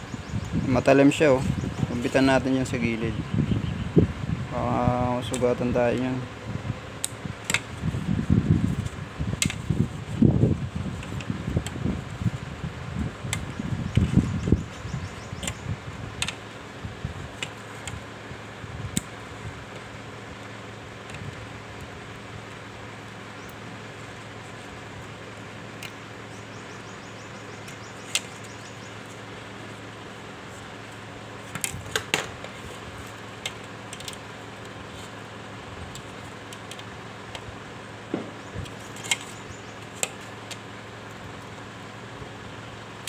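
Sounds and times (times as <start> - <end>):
steady low hum: 0.0 - 43.0.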